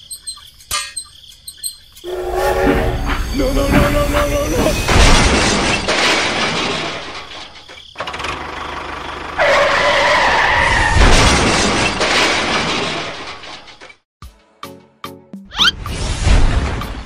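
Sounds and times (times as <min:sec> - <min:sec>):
steady horn-like tone: 0:02.1 - 0:04.7
toy train crash and skid: 0:02.1 - 0:08.4, 0:09.4 - 0:14.0.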